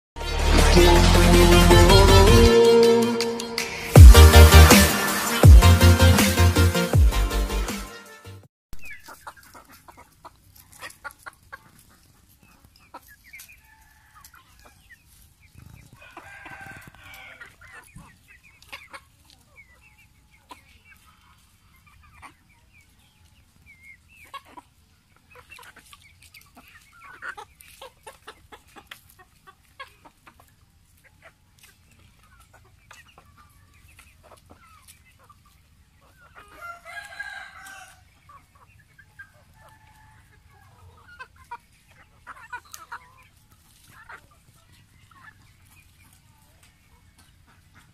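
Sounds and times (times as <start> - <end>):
chickens clucking: 8.8 - 47.9
long chicken calls: 15.5 - 17.7, 36.3 - 38.4.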